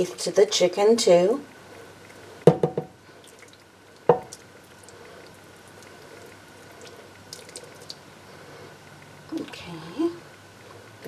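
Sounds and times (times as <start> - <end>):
thick sauce pouring and dripping: 1.7 - 8.2
pan knocking against dish: 2.5 - 2.9.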